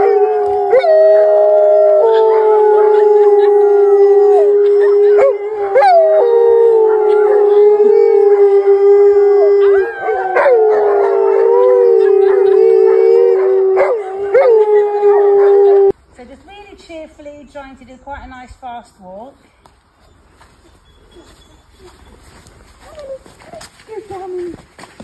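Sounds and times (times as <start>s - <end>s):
wolves howling: 0.0s - 15.9s
woman howling: 0.0s - 15.9s.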